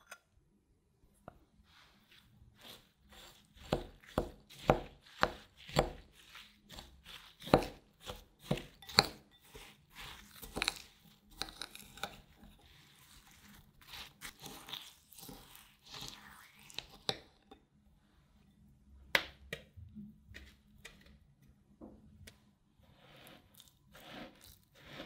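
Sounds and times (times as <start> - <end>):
metal spoon scraping glass bowl: 5.1 - 16.9, 23.1 - 25.0.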